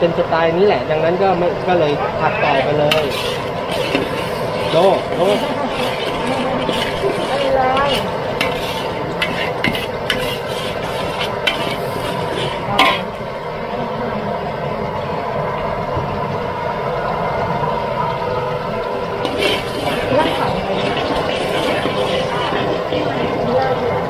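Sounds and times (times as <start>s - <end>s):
steady sizzling: 0.0s - 24.0s
spatula scraping a wok: 2.4s - 13.2s, 19.2s - 23.3s
spatula clanking against wok: 11.2s - 13.2s.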